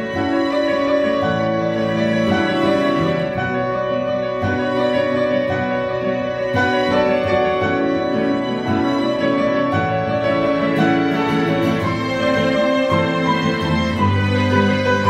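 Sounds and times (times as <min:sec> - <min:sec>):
bowed strings sustained notes: 0:00.0 - 0:15.0
grand piano playing: 0:00.0 - 0:15.0.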